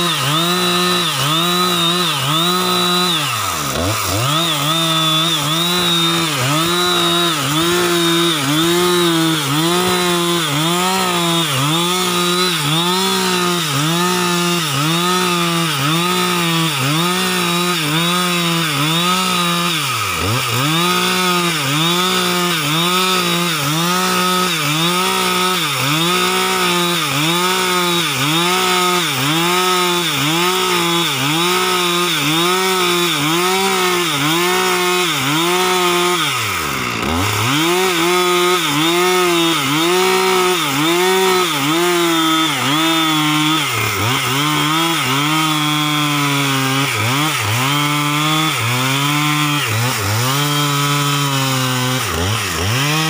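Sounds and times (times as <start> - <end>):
chainsaw cutting log: 0.0 - 53.0.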